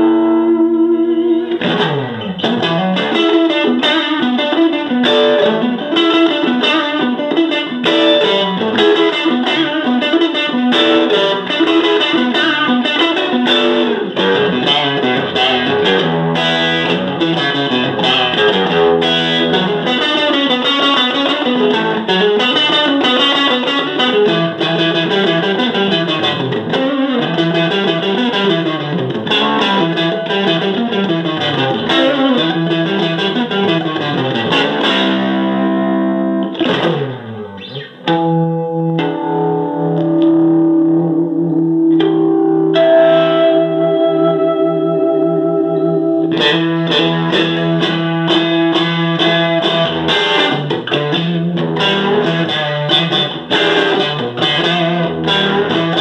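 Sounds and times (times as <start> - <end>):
electric guitar lead improvisation: 0.0 - 56.0.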